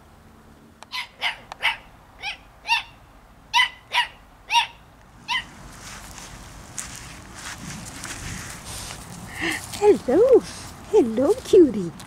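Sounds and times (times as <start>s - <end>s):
small dog barking: 0.9s - 5.5s.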